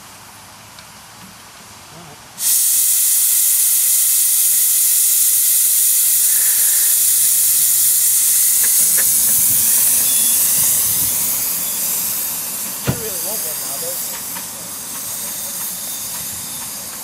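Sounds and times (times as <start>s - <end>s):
steam locomotive hissing steam: 2.4s - 17.0s.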